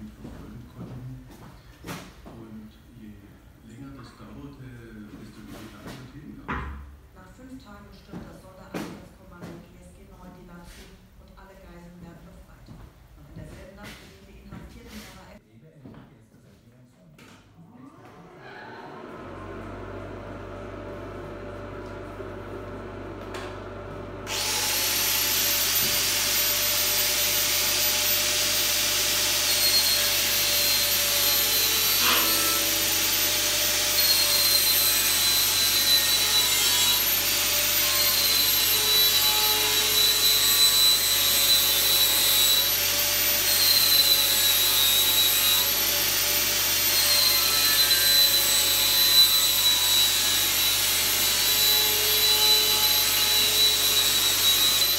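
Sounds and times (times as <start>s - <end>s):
angle grinder sanding metal: 24.3s - 54.9s.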